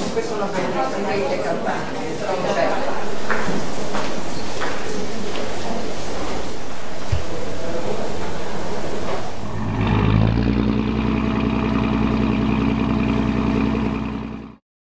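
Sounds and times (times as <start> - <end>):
boat engine humming: 2.6 - 14.6
rushing noise: 2.9 - 14.2.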